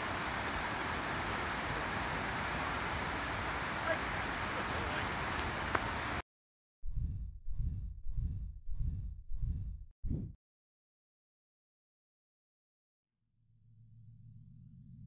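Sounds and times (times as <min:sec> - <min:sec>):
outdoor background rush: 0:00.0 - 0:06.2
faint click: 0:05.4 - 0:05.9
low whooshing pulses: 0:06.9 - 0:10.4.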